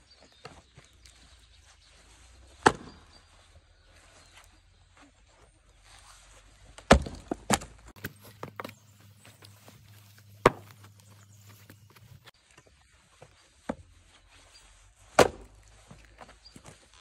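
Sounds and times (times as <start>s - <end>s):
axe chopping into log: 2.6s - 3.0s, 6.8s - 8.8s, 10.4s - 10.9s, 15.1s - 15.6s
sharp wooden knock: 10.4s - 10.8s.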